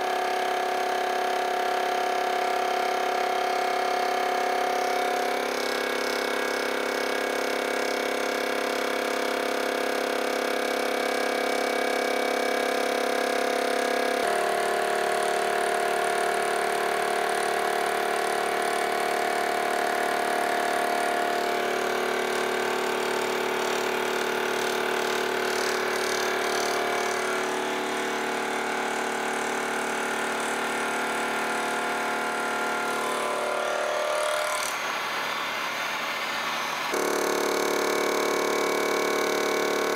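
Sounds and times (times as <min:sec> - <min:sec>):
milling machine whine: 0:00.0 - 0:39.9.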